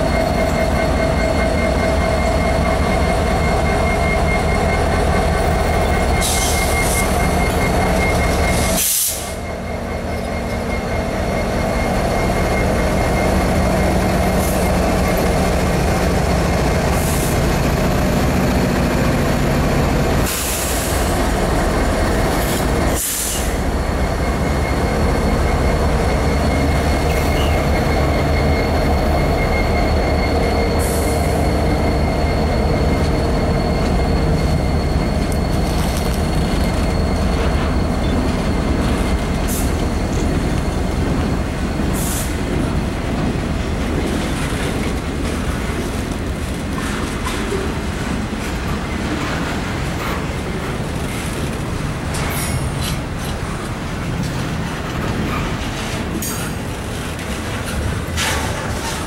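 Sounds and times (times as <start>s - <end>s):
diesel locomotive engines running: 0.0s - 59.0s
train cars rolling on rails: 0.0s - 59.0s
high-pitched wheel squeal: 23.2s - 41.0s.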